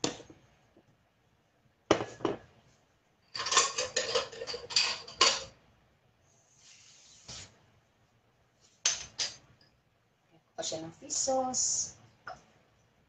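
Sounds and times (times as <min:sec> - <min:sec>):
kitchen clicks and knocks: 0:03.3 - 0:05.6, 0:08.8 - 0:09.4.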